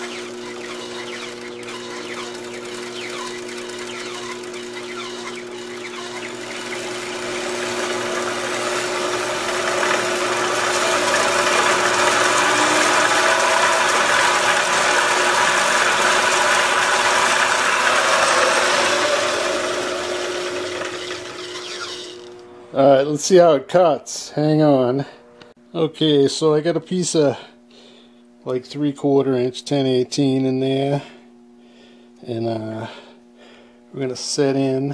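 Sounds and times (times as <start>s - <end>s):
saw blade cutting metal: 0.0s - 22.4s
band saw motor hum: 0.0s - 25.6s.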